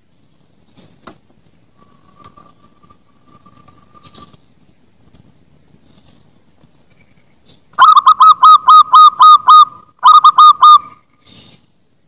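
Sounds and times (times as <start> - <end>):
dove cooing: 7.8 - 11.0.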